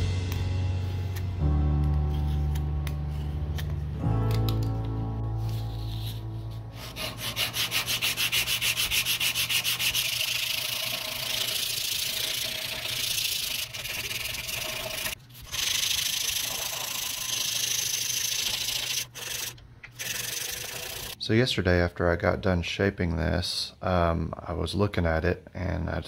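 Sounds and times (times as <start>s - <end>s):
sandpaper rasping on wood: 6.8s - 21.2s.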